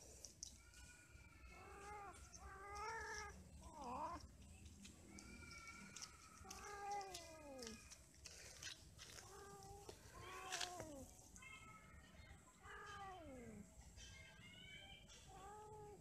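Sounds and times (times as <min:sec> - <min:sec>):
cats yowling: 0:00.6 - 0:04.4, 0:05.0 - 0:08.5.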